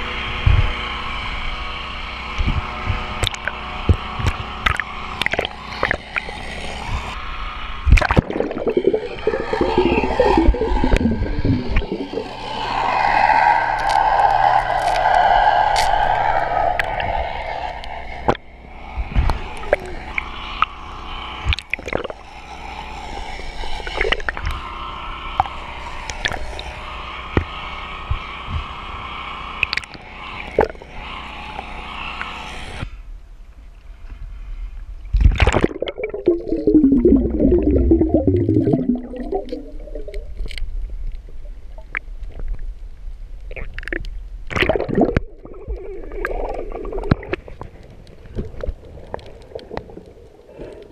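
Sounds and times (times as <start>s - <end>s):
murky underwater hum: 0.0s - 50.9s
mussel shells clicking underwater: 3.2s - 3.6s, 4.6s - 6.4s, 21.5s - 22.2s, 35.2s - 42.6s, 43.4s - 50.9s
loud bubbling gurgle: 7.9s - 15.1s, 35.2s - 40.5s, 43.5s - 47.7s.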